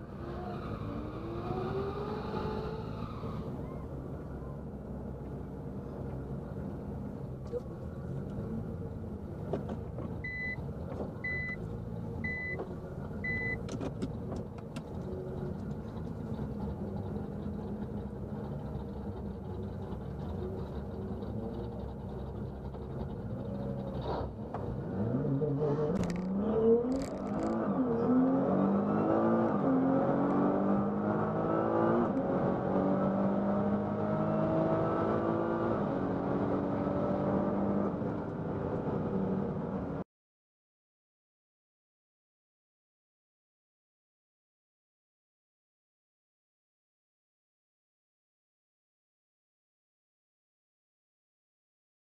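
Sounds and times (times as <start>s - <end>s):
car engine revving and upshifting: 0.0s - 3.8s, 7.5s - 40.0s
road noise: 0.0s - 40.0s.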